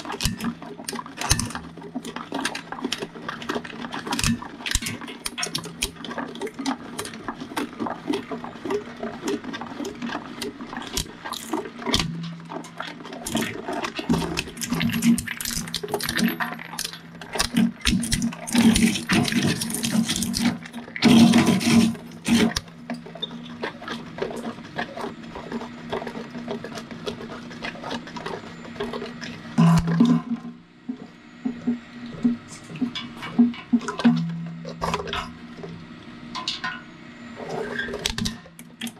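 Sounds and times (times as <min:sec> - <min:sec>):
crunching bursts: 0:00.0 - 0:30.1
plastic clattering on blades: 0:00.0 - 0:30.6
shredder humming: 0:13.2 - 0:36.3.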